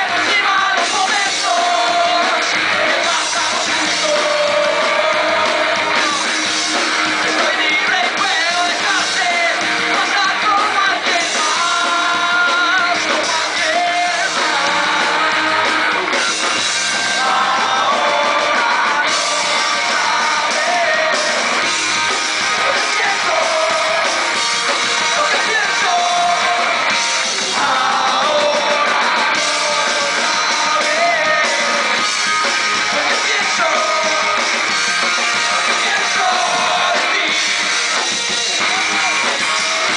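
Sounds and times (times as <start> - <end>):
drum kit: 0.0 - 39.9
electric guitars: 0.0 - 39.9
person singing and shouting: 22.6 - 32.0, 35.4 - 39.9.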